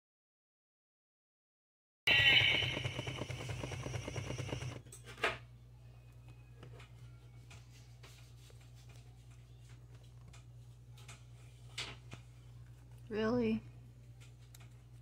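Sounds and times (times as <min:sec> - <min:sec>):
music: 0:05.2 - 0:10.0.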